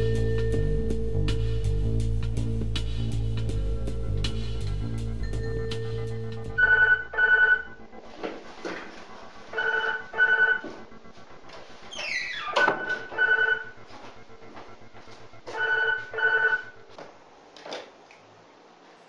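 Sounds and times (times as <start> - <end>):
telephone ringing: 5.4 - 7.8, 9.5 - 10.6, 12.6 - 13.8, 15.5 - 16.8
movement noise: 7.8 - 17.2.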